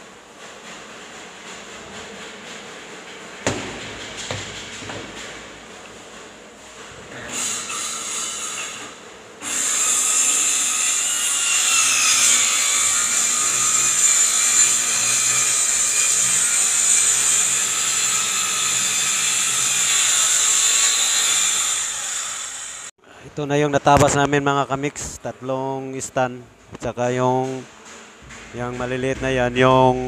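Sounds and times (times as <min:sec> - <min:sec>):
circular saw cutting plywood: 0:07.1 - 0:22.9.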